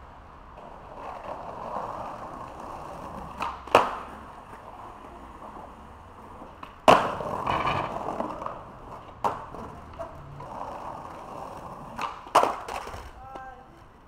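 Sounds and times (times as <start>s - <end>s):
skateboard wheels rolling on pavement: 0.0s - 14.0s
skateboard clacking on ground: 0.5s - 14.0s.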